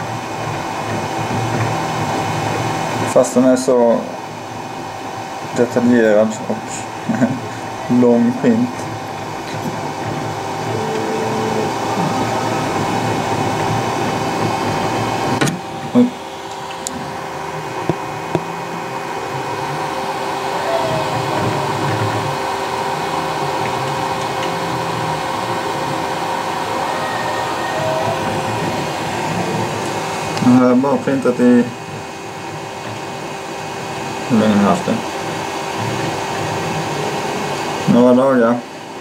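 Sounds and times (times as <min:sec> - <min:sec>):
cooling fans whirring: 0:00.0 - 0:39.0
short motor tones: 0:07.4 - 0:30.6.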